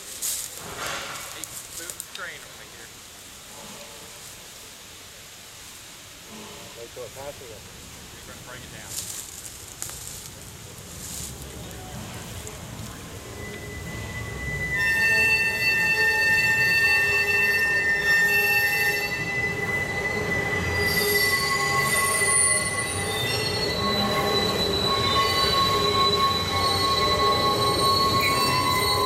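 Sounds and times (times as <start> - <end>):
train wheels squealing on rails: 11.0 - 29.0.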